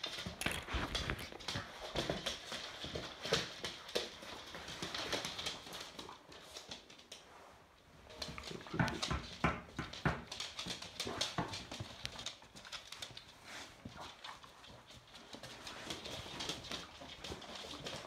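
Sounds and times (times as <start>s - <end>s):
dog claws tapping on wooden floor: 0.0s - 7.2s, 8.2s - 13.3s.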